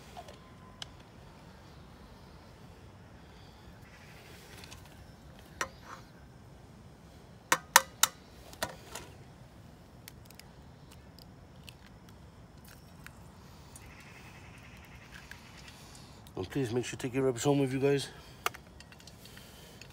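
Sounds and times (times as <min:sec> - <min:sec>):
egg tapping and cracking: 0:07.5 - 0:08.2.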